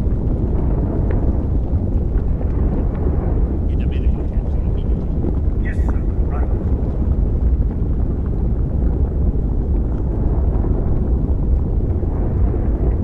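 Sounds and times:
deep rumble of lava field: 0:00.0 - 0:13.0.

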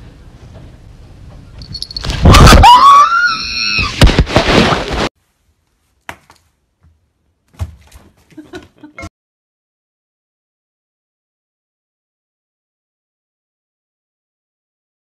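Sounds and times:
person screaming: 0:02.3 - 0:04.0.

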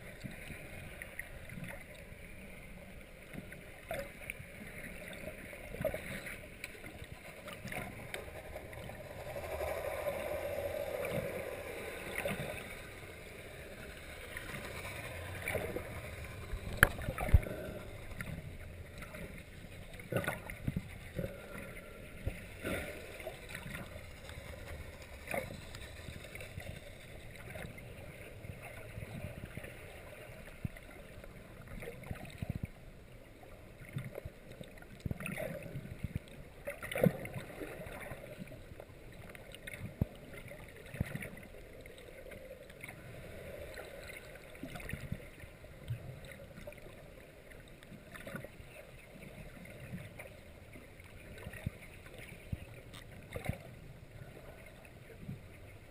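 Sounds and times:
underwater gurgles: 0:00.0 - 0:55.9
underwater water noise: 0:00.0 - 0:55.9.

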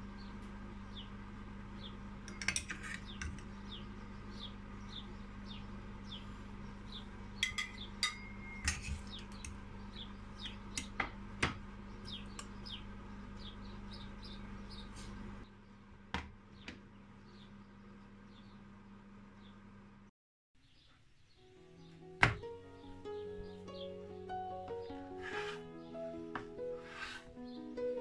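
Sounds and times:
steady low hum: 0:00.0 - 0:20.1
small bird chirping: 0:01.8 - 0:11.0, 0:11.8 - 0:15.2, 0:20.6 - 0:28.0
metal spatula scraping pot: 0:02.3 - 0:03.4, 0:08.4 - 0:09.2, 0:25.2 - 0:25.6, 0:26.8 - 0:27.3.

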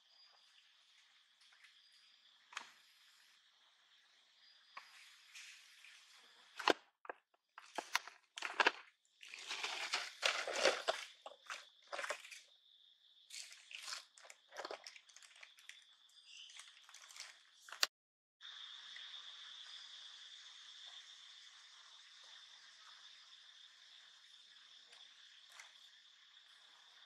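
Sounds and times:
plastic bag crinkling: 0:07.6 - 0:12.4, 0:13.3 - 0:15.8, 0:16.5 - 0:17.8
high insect drone: 0:18.4 - 0:27.0.

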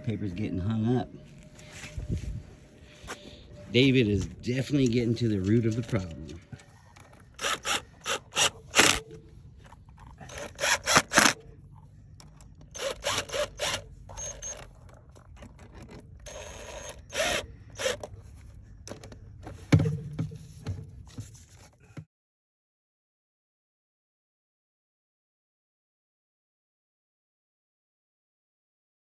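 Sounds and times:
hand tool ratchet clicks: 0:07.0 - 0:09.1, 0:10.2 - 0:11.4, 0:12.2 - 0:18.1.

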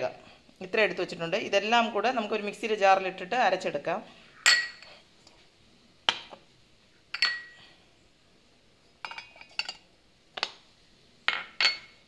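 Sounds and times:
glass and steel jars clinking: 0:04.5 - 0:04.9, 0:07.1 - 0:07.6, 0:09.0 - 0:09.8, 0:11.3 - 0:12.0.

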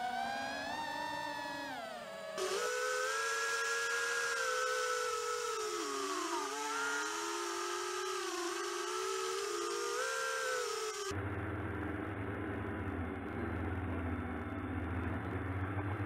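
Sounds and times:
quadcopter motors whining: 0:00.0 - 0:11.2.

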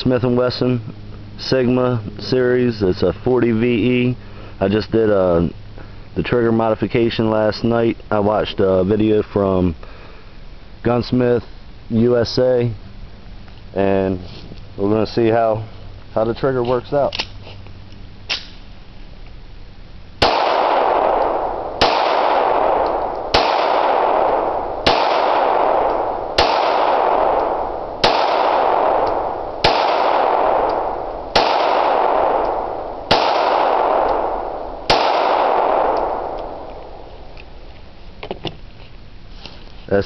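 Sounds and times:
pistol shots with echo: 0:20.2 - 0:37.1.

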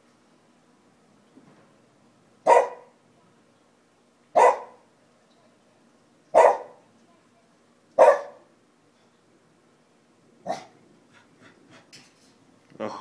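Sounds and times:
dog barking: 0:02.5 - 0:02.9, 0:04.4 - 0:04.8, 0:06.3 - 0:06.8, 0:08.0 - 0:08.4, 0:10.4 - 0:10.8.

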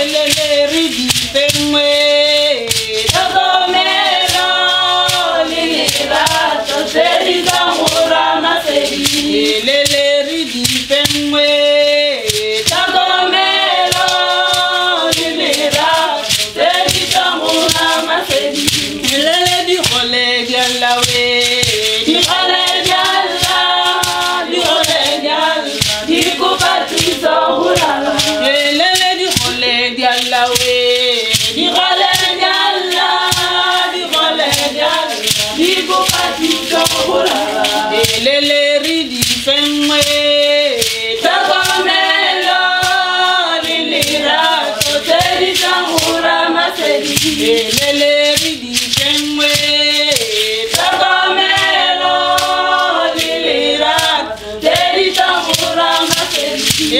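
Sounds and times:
ankle rattles beating: 0:00.0 - 0:56.9
group singing in chorus: 0:00.0 - 0:56.9.

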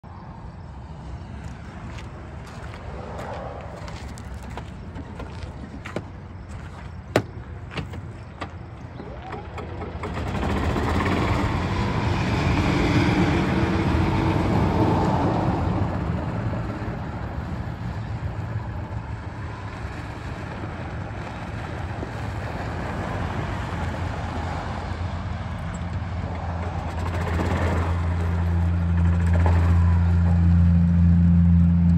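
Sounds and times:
tyres crunching on gravel: 0:01.2 - 0:09.4
golf cart humming: 0:03.6 - 0:31.9.

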